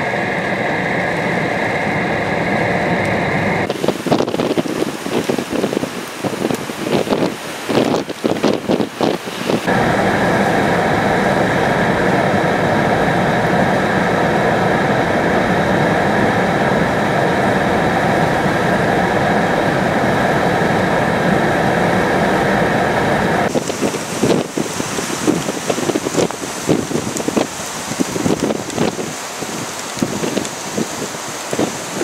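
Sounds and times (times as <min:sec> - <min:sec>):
rain: 0:00.0 - 0:32.0
wind gusting against microphone: 0:00.0 - 0:32.0
faint hum: 0:09.7 - 0:27.4.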